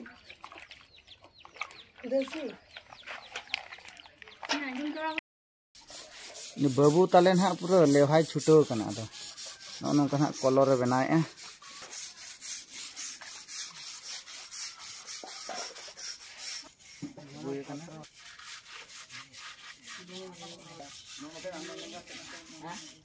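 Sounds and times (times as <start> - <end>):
paintbrush scrubbing a wall: 5.8 - 23.0.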